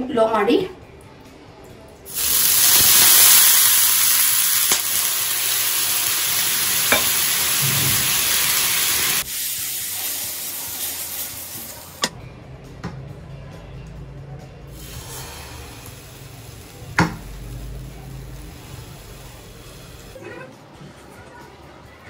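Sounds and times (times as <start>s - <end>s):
water sizzling on hot pan: 2.1s - 12.1s, 14.8s - 20.2s.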